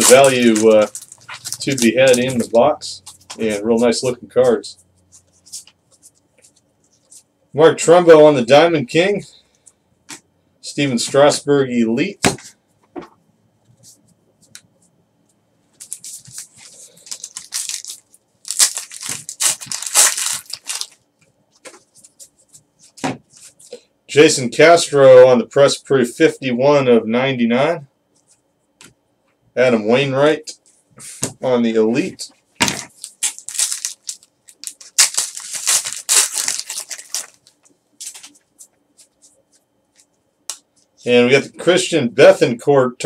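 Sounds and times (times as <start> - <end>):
cards clicking and rustling: 0.0 - 2.6
foil wrapper tearing and crinkling: 0.0 - 2.6, 15.8 - 21.0, 32.7 - 38.3.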